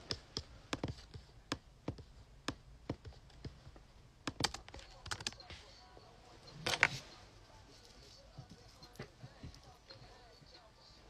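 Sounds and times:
computer keyboard typing: 0.0 - 5.6.

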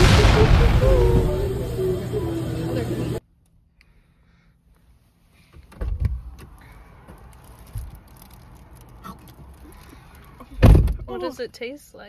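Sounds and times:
faint steady hum: 0.0 - 5.5.

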